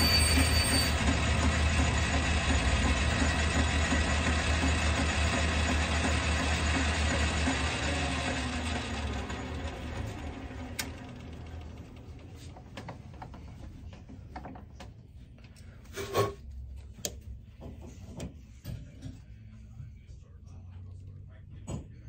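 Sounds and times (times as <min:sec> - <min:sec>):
lathe motor humming: 0:00.0 - 0:13.3.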